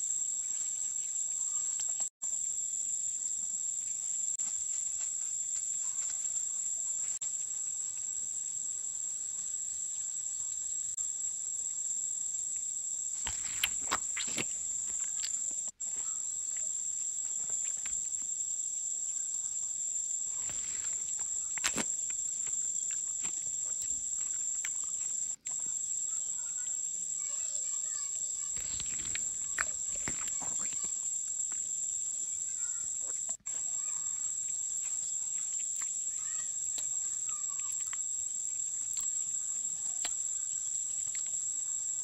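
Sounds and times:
insects droning: 0:00.0 - 0:42.0.

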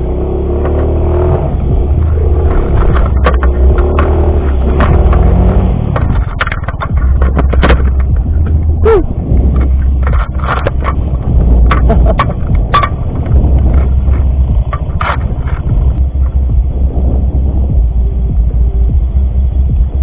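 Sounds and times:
scooter engine running at low revs: 0:00.0 - 0:20.0
sharp knocks and rattles: 0:00.5 - 0:20.0.

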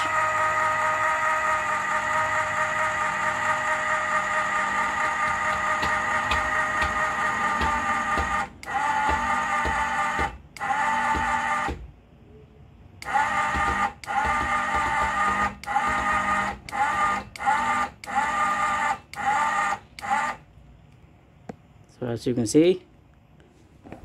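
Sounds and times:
electric floor jack motor whining: 0:00.0 - 0:11.8, 0:13.0 - 0:20.4.

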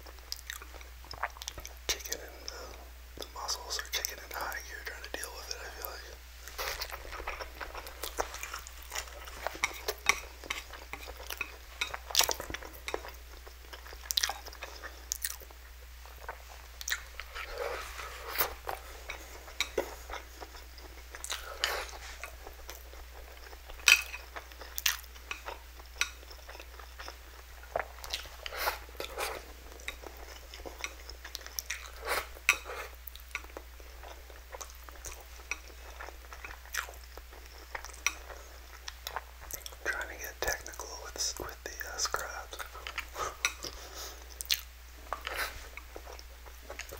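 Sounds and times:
slurping and chewing noodles: 0:06.4 - 0:39.8.

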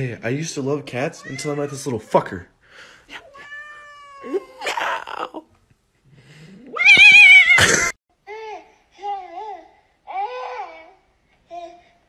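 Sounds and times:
cat wailing and yowling: 0:03.3 - 0:05.3, 0:06.7 - 0:07.9
cat hissing: 0:06.5 - 0:08.0.

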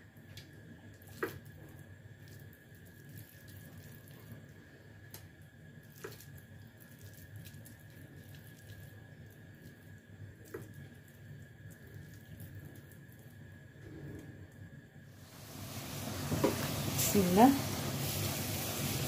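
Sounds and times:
hands rolling minced meat: 0:05.1 - 0:13.4.

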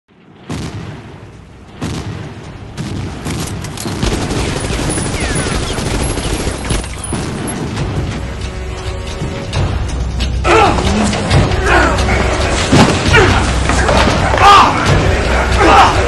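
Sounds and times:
rapid gunfire: 0:01.8 - 0:07.5.

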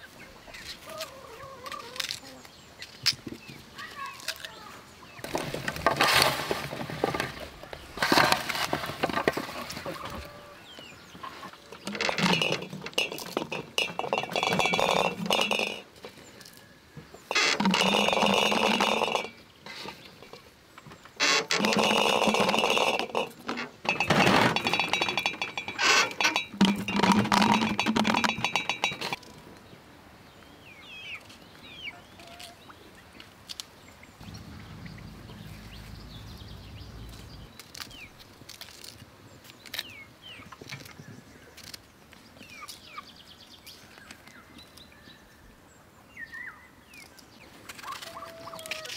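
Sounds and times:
geese honking: 0:34.2 - 0:37.3.

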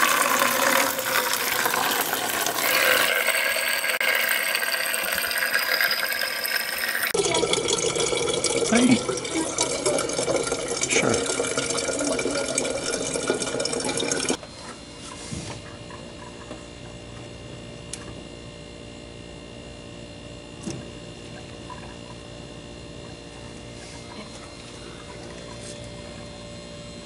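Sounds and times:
water pouring into plastic bottle: 0:00.0 - 0:14.4
low steady hum: 0:00.0 - 0:27.0.

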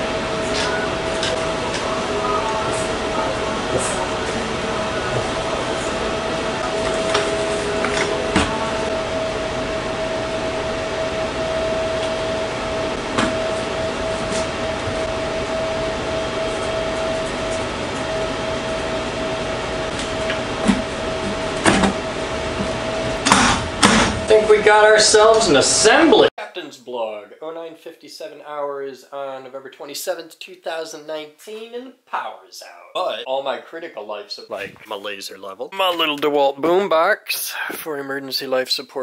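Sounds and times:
machine hum with whining tone: 0:00.0 - 0:26.3.

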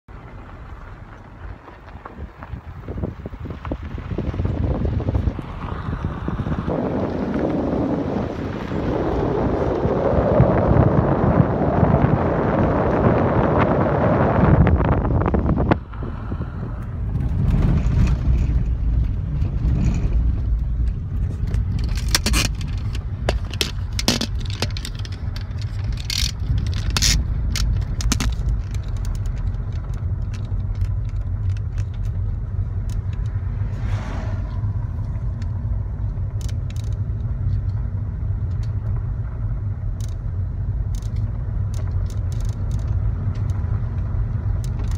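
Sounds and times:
car rumbling on dirt road: 0:00.0 - 0:44.9
sharp rattles and clicks: 0:16.8 - 0:33.7, 0:34.5 - 0:44.9.

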